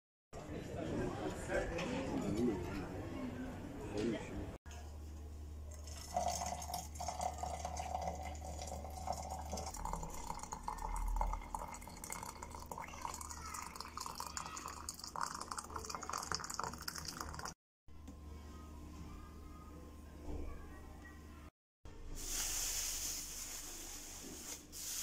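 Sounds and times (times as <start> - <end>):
water pouring into a metal teapot: 5.7 - 17.6.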